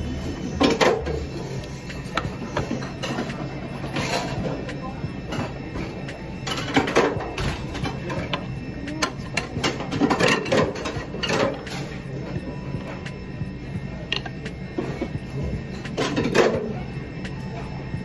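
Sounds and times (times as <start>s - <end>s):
steady mechanical hum: 0.0s - 18.0s
plates and chopsticks clinking: 9.0s - 12.0s.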